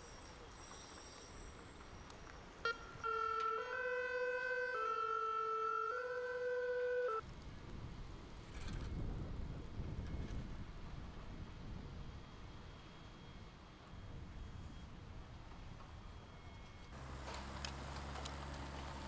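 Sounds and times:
two-tone emergency siren: 2.6 - 7.2
low wind rumble: 7.2 - 19.0.

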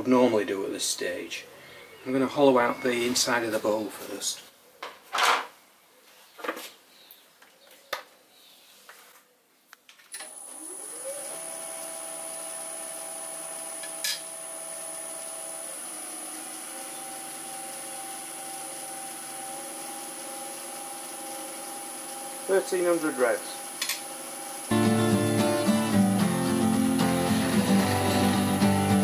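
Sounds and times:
wood lathe motor whine: 10.2 - 29.0.

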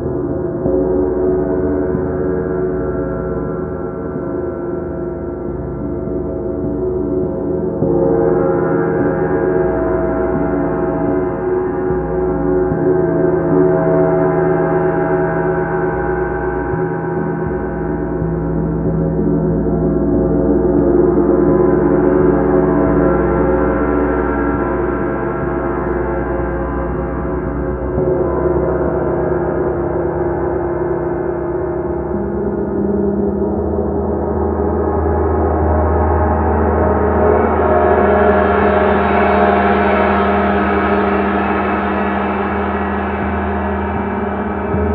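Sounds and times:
gongs shimmering: 35.1 - 44.9.

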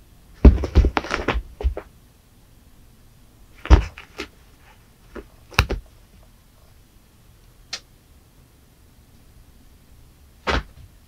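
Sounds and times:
cat thumping on carpet: 0.4 - 1.9, 3.6 - 4.3.

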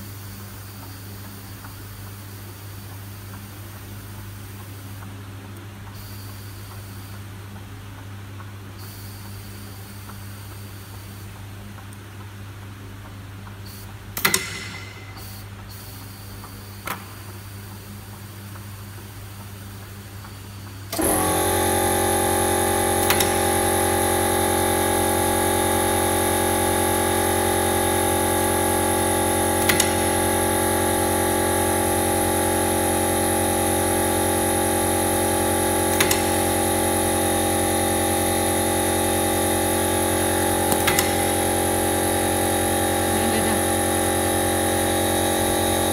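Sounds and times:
machine motor hum and whine: 13.4 - 45.9.

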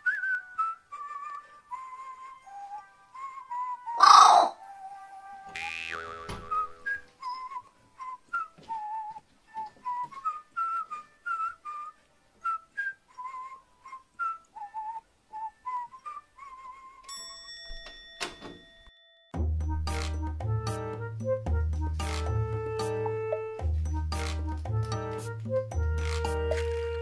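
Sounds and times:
person whistling a tune: 0.0 - 4.0, 6.4 - 17.2.

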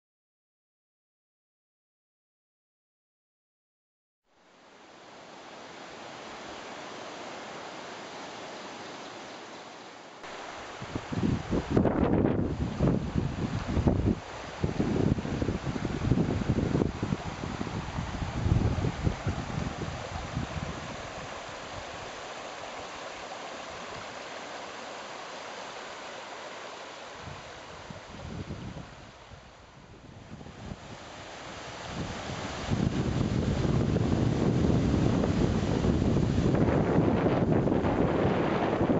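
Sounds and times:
waterfall rushing: 4.5 - 38.9
wind buffeting microphone: 10.7 - 22.2, 27.2 - 38.9.

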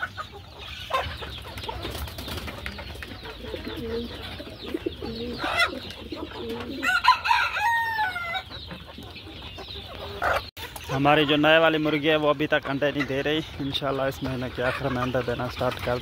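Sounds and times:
chickens clucking: 0.0 - 16.0
rooster crowing: 6.8 - 8.4.

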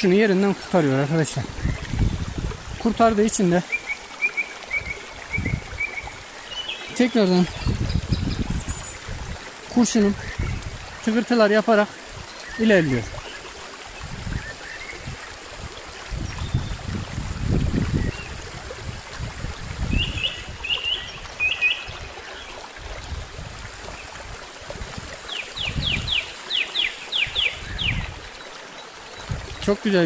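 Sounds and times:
stream babbling over stones: 0.0 - 30.0
low rumbles on microphone: 1.4 - 3.2, 7.5 - 9.5, 15.0 - 20.6.

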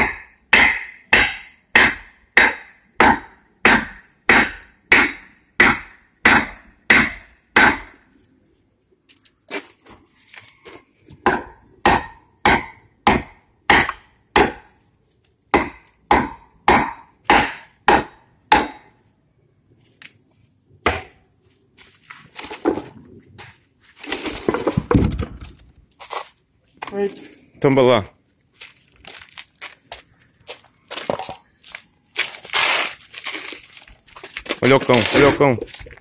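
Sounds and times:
hatchet chopping into log: 0.0 - 7.9, 11.2 - 14.7, 15.5 - 18.9, 20.8 - 21.1
wood scraping and splintering: 22.1 - 26.4, 32.2 - 36.0.

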